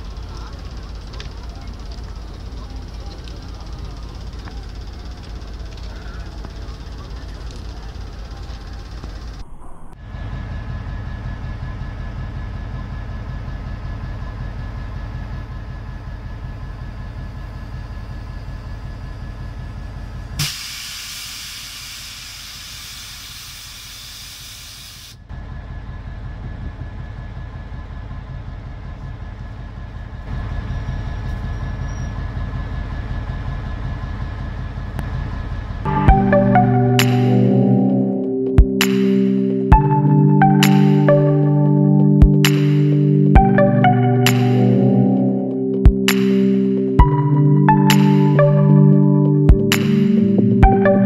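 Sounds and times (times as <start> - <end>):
diesel locomotives idling: 0.0 - 51.0
air hiss: 20.4 - 25.2.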